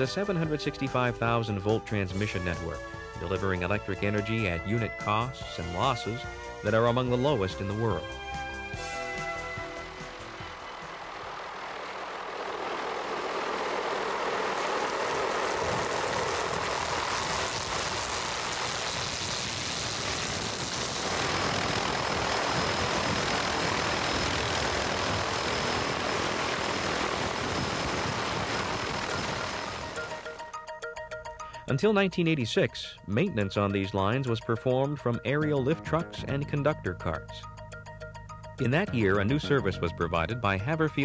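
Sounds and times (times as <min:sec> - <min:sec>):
helicopter engine and rotor: 0:06.0 - 0:31.1.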